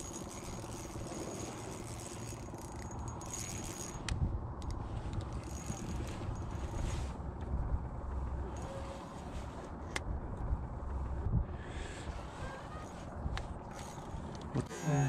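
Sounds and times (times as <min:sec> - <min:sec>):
fishing reel mechanical rattle: 0:00.0 - 0:04.1, 0:05.2 - 0:06.9, 0:13.6 - 0:15.0
wind rumble on microphone: 0:00.5 - 0:14.7.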